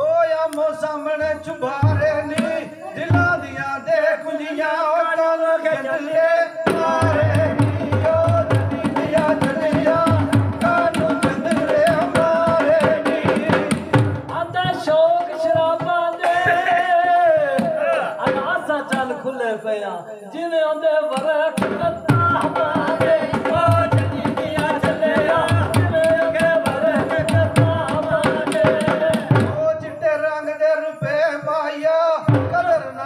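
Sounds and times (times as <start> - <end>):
man singing into a microphone: 0.0 - 33.0.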